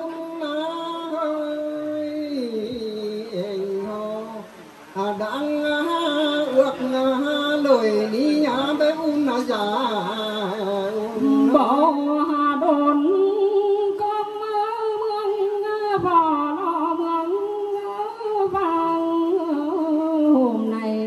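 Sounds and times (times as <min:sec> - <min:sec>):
woman singing through loudspeaker: 0:00.0 - 0:21.0.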